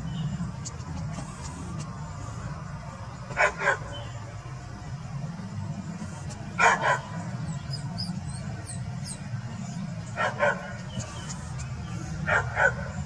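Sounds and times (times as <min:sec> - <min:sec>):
large dog barking: 0:03.3 - 0:04.0, 0:06.6 - 0:07.2, 0:10.2 - 0:10.8, 0:12.2 - 0:13.0.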